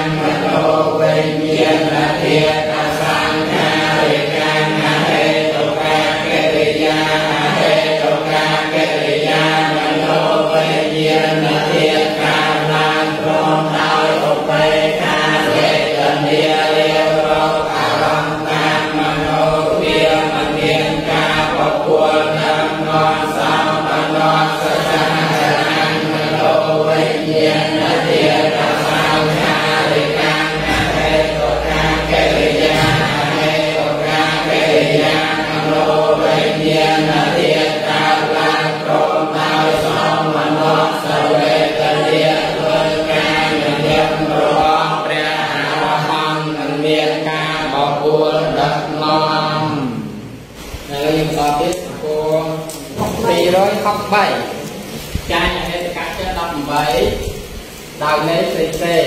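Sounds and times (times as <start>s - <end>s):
group chanting: 0.0s - 59.0s.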